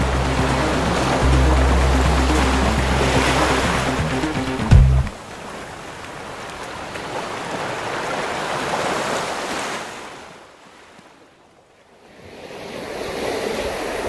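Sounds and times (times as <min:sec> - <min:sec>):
ocean surf rushing: 0:00.0 - 0:09.9.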